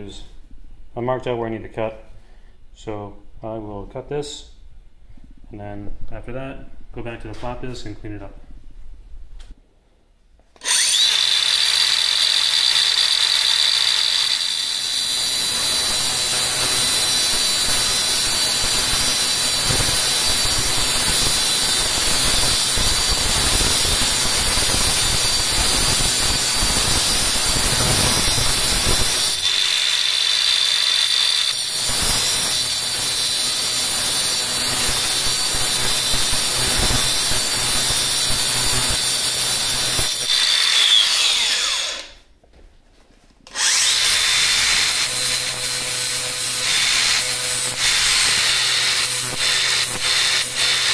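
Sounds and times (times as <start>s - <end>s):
angle grinder cutting metal: 10.6s - 42.2s, 43.5s - 50.9s.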